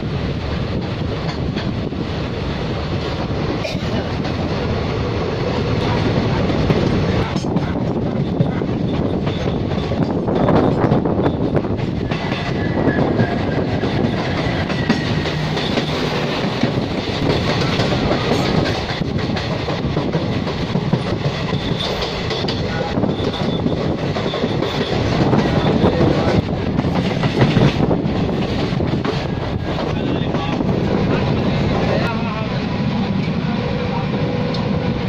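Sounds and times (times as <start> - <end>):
diesel locomotive passing: 0.0 - 35.0
train wheels clickety-clack: 0.1 - 33.4
freight wagons passing: 9.0 - 32.4.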